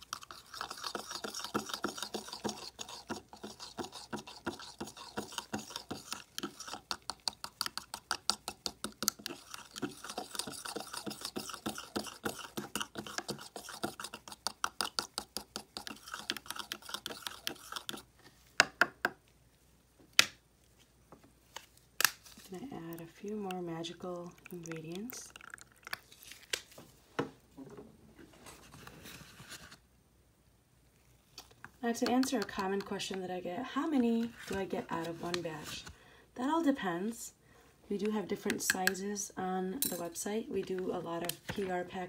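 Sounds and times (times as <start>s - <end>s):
spoon stirring in plastic cup: 0.0s - 18.1s, 22.3s - 26.2s, 31.4s - 35.9s, 37.9s - 39.1s, 39.8s - 42.0s.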